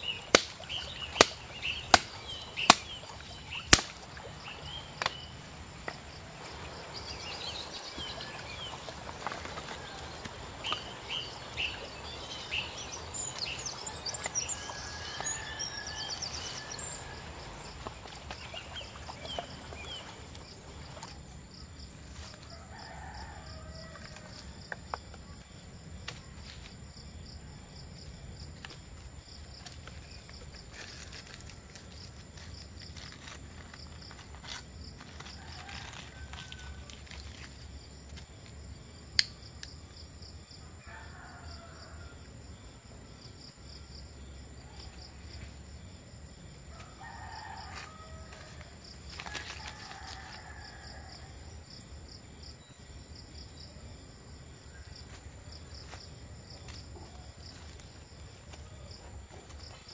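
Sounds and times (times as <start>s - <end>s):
machete chopping sticks: 0.1s - 3.0s, 3.6s - 4.1s.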